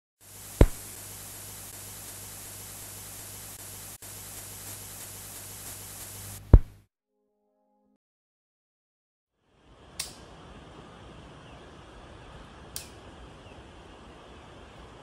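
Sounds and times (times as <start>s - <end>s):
film hiss: 0.2s - 6.8s, 9.4s - 15.0s
loud pops: 0.5s - 1.0s, 6.4s - 6.8s.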